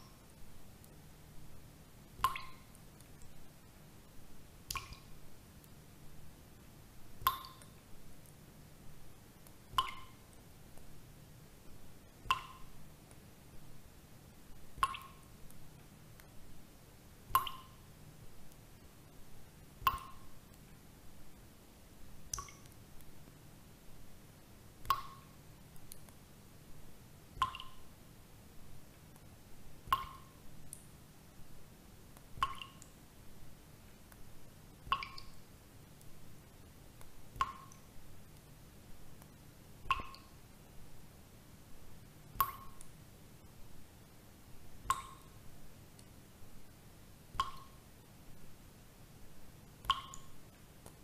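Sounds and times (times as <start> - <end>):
water dripping: 0.0 - 3.6, 4.5 - 8.6, 9.4 - 11.0, 11.6 - 16.4, 17.2 - 20.8, 22.2 - 23.4, 24.4 - 26.3, 27.2 - 28.0, 28.9 - 31.0, 32.1 - 40.6, 42.2 - 43.6, 44.7 - 46.2, 47.3 - 47.9, 49.6 - 51.0
water droplets plinking: 2.2 - 2.7, 7.3 - 7.8, 9.8 - 10.2, 12.3 - 12.7, 14.8 - 15.2, 17.4 - 17.8, 19.9 - 20.3, 24.8 - 25.3, 27.4 - 27.8, 32.4 - 33.0, 47.4 - 47.8, 49.9 - 50.4
faint ticks: 14.5 - 16.4, 22.3 - 23.4, 24.8 - 26.2, 33.8 - 35.4.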